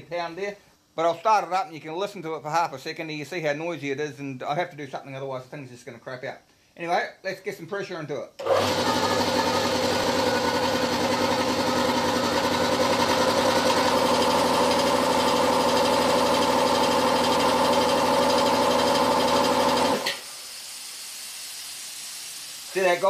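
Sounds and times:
air compressor chugging: 8.4 - 23.0
air hissing: 20.0 - 23.0.

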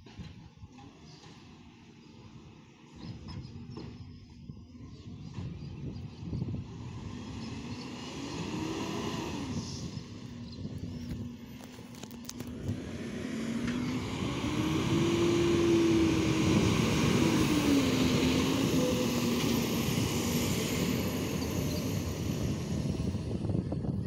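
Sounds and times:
truck diesel engine driving past: 6.2 - 11.6, 12.4 - 23.9.

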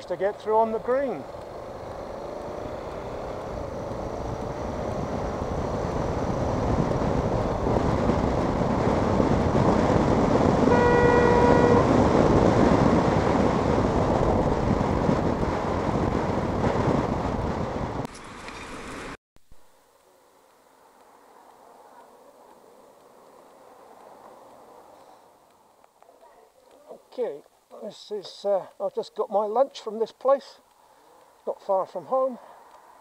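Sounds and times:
motorcycle engine and wind: 0.0 - 19.2
vehicle horn toot: 10.6 - 12.2.

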